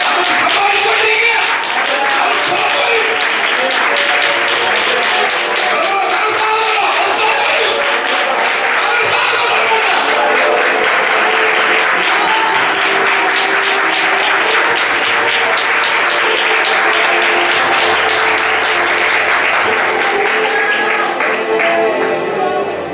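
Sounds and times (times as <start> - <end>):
crowd clapping: 0.0 - 22.7
music with sustained notes: 0.0 - 22.9.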